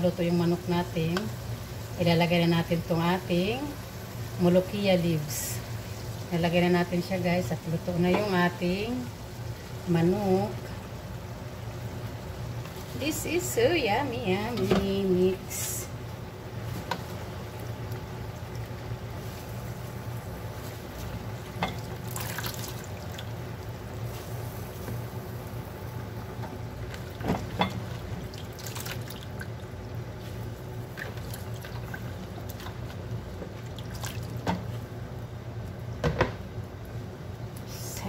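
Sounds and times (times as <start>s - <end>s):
steady low hum: 0.0s - 38.0s
liquid bubbling in a pot: 15.9s - 37.6s.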